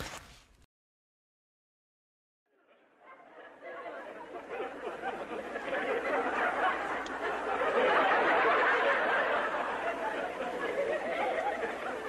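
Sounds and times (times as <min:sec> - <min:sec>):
crowd babble: 0:02.7 - 0:12.0.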